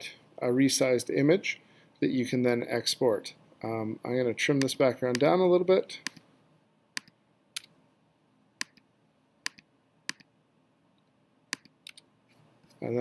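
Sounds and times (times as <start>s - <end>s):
computer mouse clicking: 7.0s - 7.7s, 8.6s - 10.3s, 11.5s - 12.1s.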